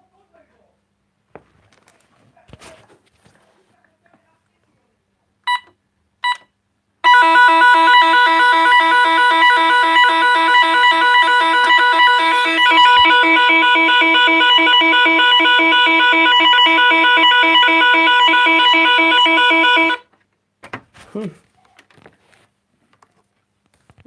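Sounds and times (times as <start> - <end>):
warbling electronic alarm tone: 7.1 - 20.0.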